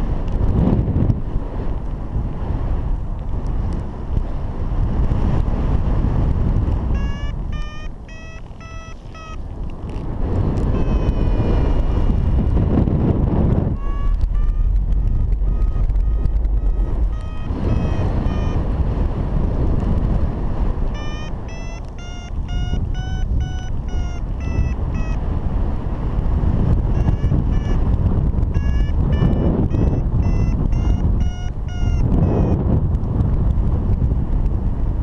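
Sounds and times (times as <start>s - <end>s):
wind noise on microphone: 0.0s - 35.0s
variometer beeping: 6.3s - 34.0s.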